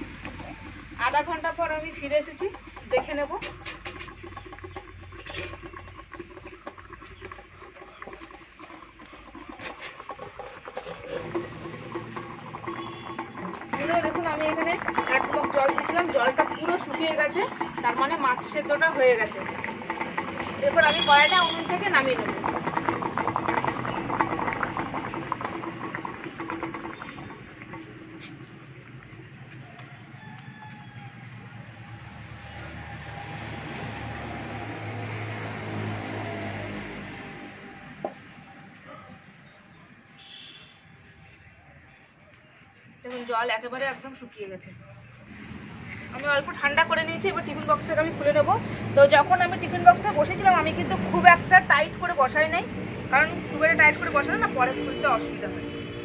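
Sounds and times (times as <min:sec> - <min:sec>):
wood fire crackling: 0:00.0 - 0:30.0
cloth scraping on steel plate: 0:02.4 - 0:28.4
rooster crowing: 0:29.6 - 0:32.2.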